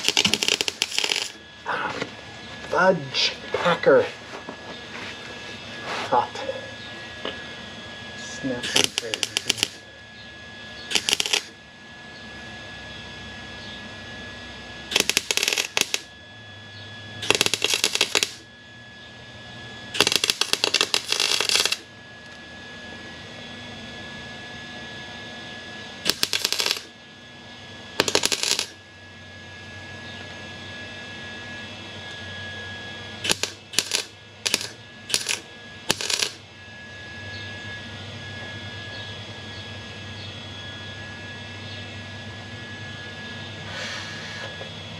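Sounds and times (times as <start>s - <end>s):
welding arc crackling: 0.0s - 1.4s, 8.6s - 9.8s, 10.9s - 11.6s, 14.9s - 16.1s, 17.2s - 18.4s, 20.0s - 21.9s, 26.0s - 27.0s, 28.0s - 28.8s, 33.2s - 36.4s
faint high whine: 0.0s - 44.9s.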